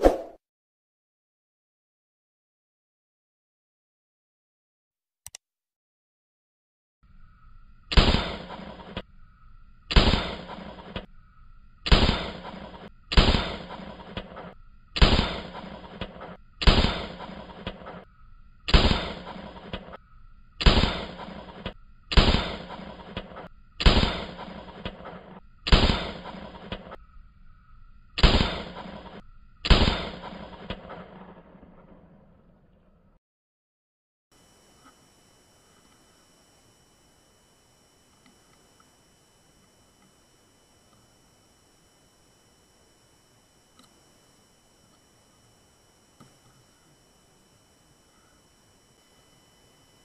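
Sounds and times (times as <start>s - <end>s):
rifle shots: 7.9s - 9.0s, 9.9s - 11.1s, 11.8s - 18.0s, 18.7s - 20.0s, 20.6s - 27.0s, 28.2s - 32.2s.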